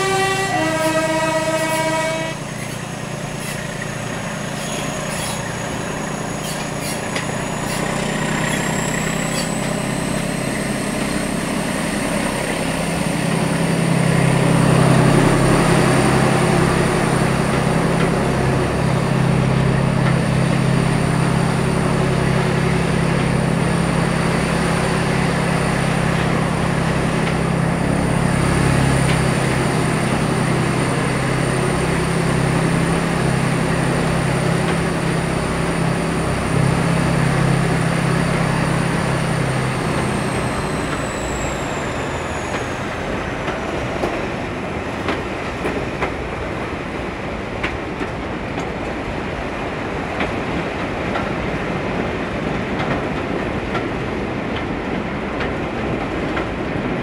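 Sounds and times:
two-tone train horn: 0.0s - 2.6s
train engine and wheels: 0.0s - 57.0s.

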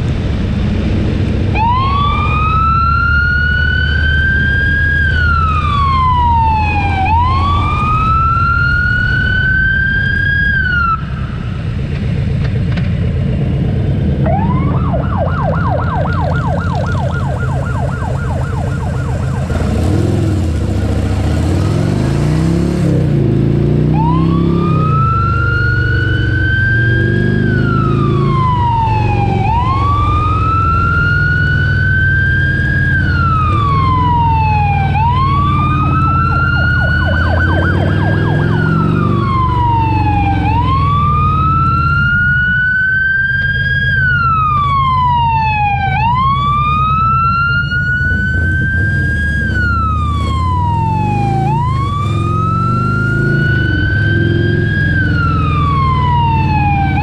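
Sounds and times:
emergency siren wailing: 1.4s - 11.7s, 14.2s - 57.0s.

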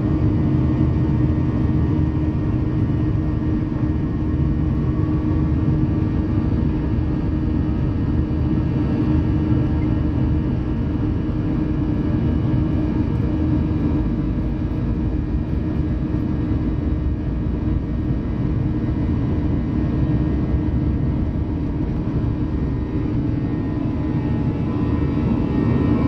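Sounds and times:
jet engine hum: 0.0s - 26.0s.

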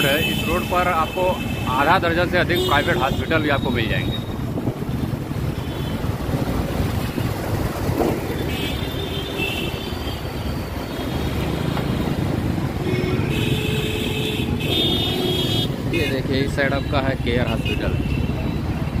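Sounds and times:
vehicle horns: 0.0s - 4.3s, 8.4s - 12.2s, 12.8s - 16.2s
road and traffic noise: 0.0s - 19.0s
wind on microphone: 3.8s - 8.5s.

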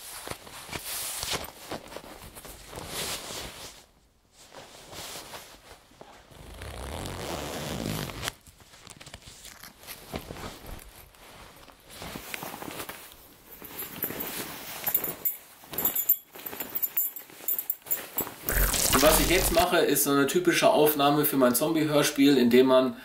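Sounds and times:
zipper rasping: 6.3s - 8.2s, 18.5s - 19.6s.

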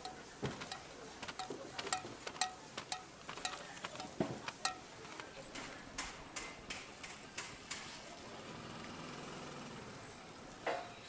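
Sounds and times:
tongs clinking on metal mold: 0.0s - 4.9s.

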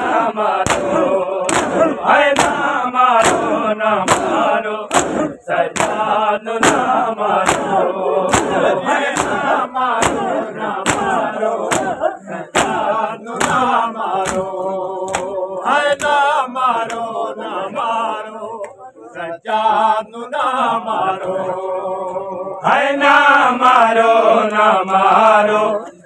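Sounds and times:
chest-beating slaps: 0.0s - 16.2s
men chanting in chorus: 0.0s - 26.0s.

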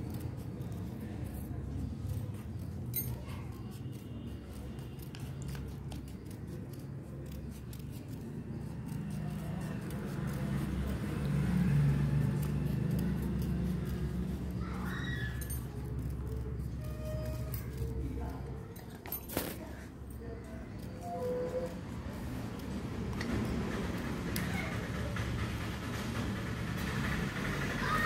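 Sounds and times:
scissors snipping paper: 0.0s - 24.8s.

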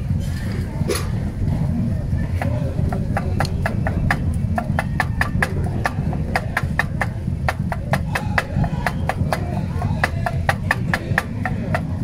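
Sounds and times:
low background rumble: 0.0s - 12.0s
stone pestle knocking on stone bowl: 2.4s - 12.0s.

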